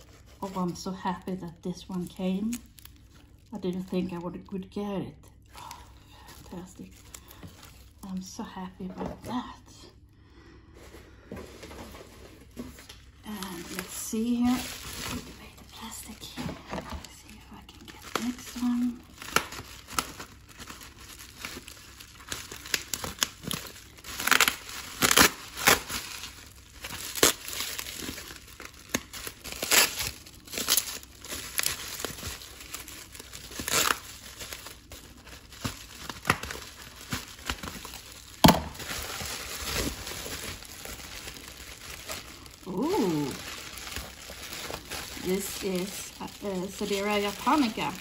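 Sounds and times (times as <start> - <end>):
bubble wrap crinkling: 0.0 - 9.8, 10.7 - 48.0
bubble wrap snap: 19.2 - 20.3, 24.2 - 34.9, 35.5 - 40.0.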